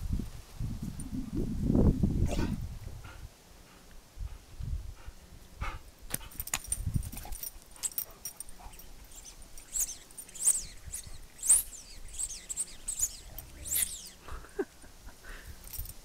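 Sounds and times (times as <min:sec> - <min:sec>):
dogs huffing: 0:02.3 - 0:03.9
high-pitched chirping squeaks: 0:07.2 - 0:14.3.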